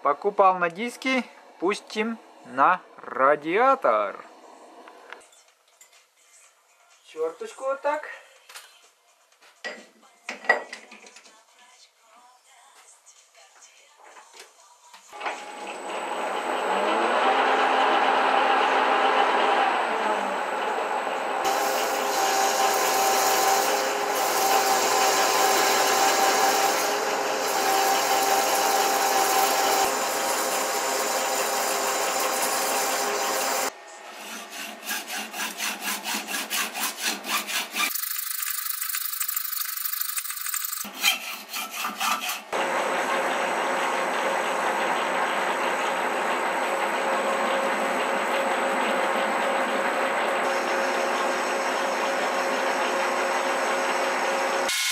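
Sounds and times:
metal lathe running: 15.2 - 33.7, 37.3 - 40.9, 42.6 - 54.9
hacksaw cutting metal bar: 21.4 - 39.0, 40.1 - 42.6, 54.7 - 54.9.

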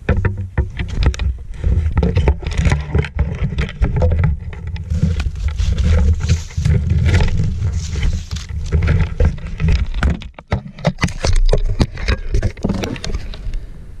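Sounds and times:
skis knocking and scraping in snow: 0.0 - 13.4.

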